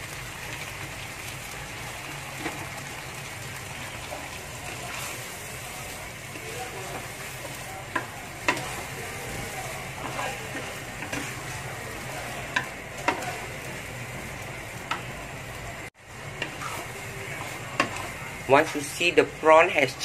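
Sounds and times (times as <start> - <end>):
food sizzling in a wok: 0.0 - 20.0
spatula knocking and scraping pan: 6.3 - 13.5, 17.4 - 18.2.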